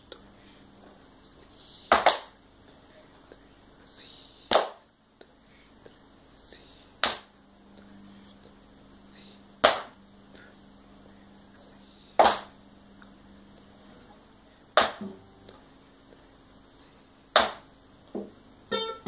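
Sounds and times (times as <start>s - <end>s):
faint low hum: 0.0s - 19.0s
children clapping in unison: 1.9s - 2.3s, 12.2s - 12.5s.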